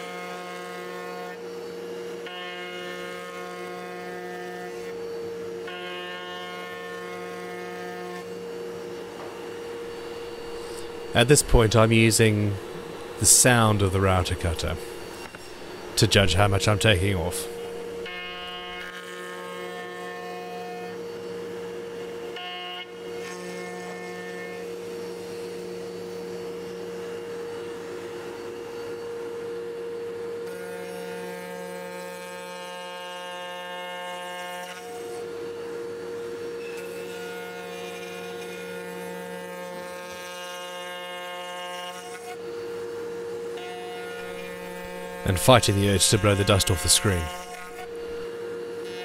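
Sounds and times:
router cutting wood: 0.0s - 49.0s.

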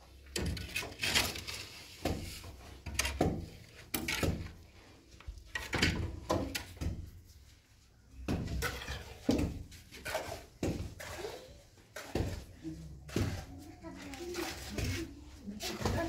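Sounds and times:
irregular knocks and thumps: 5.5s - 7.4s, 8.1s - 11.0s, 11.8s - 13.9s.

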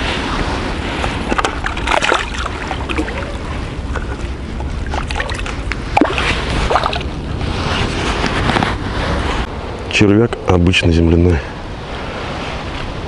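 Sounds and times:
water splashing and sloshing: 0.0s - 9.5s
steady low rumble: 0.0s - 13.0s.

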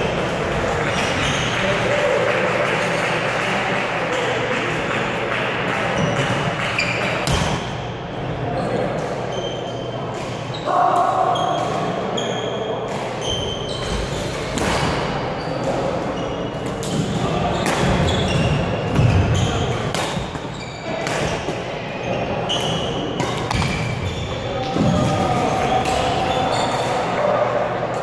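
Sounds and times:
rackets striking shuttlecock: 22.6s - 24.0s.

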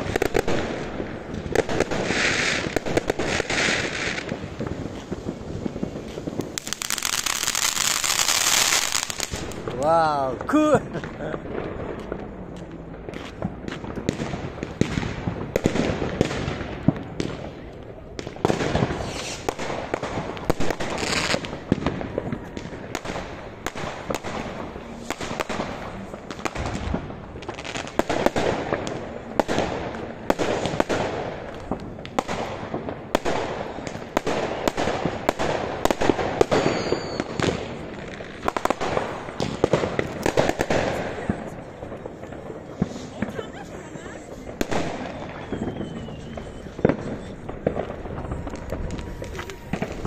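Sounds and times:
fireworks bangs and crackles: 0.0s - 50.0s
high firework whistle: 18.9s - 19.6s, 36.3s - 37.6s, 44.6s - 50.0s.

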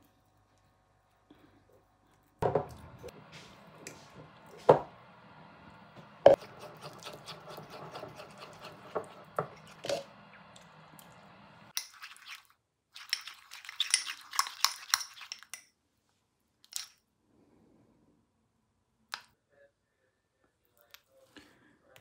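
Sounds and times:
knock on a worktop: 2.4s - 2.7s
spoon clinking against a bowl: 13.0s - 15.7s.

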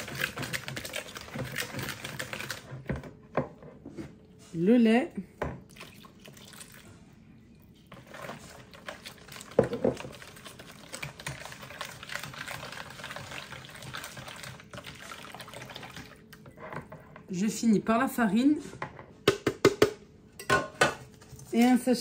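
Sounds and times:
batter sloshing: 5.7s - 16.5s.

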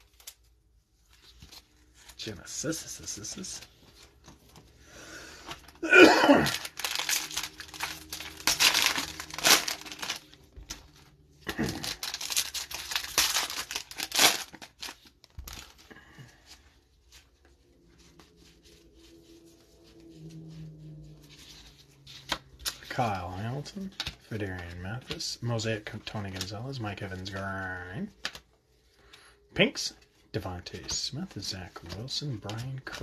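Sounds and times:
cards rustling and clicking: 0.0s - 4.8s, 6.5s - 19.8s, 21.0s - 33.0s
wrapper tearing and crinkling: 5.9s - 15.8s.

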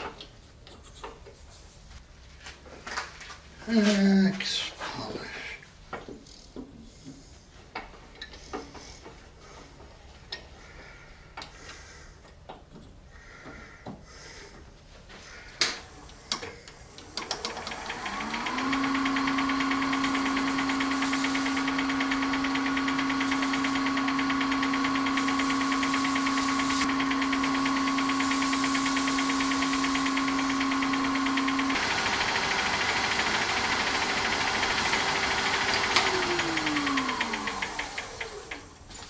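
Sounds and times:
wood lathe motor whine: 15.7s - 39.0s
cloth hissing on spinning wood: 17.0s - 38.8s.

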